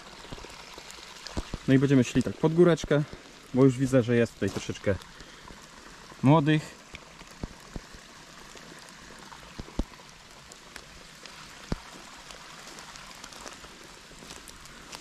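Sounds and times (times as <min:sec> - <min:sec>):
rain patter: 0:00.0 - 0:15.0
twigs snapping underfoot: 0:06.9 - 0:15.0.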